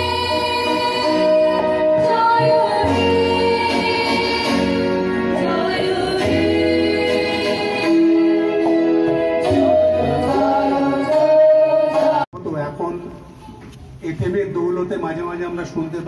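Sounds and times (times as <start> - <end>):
instrumental accompaniment: 0.0 - 12.3.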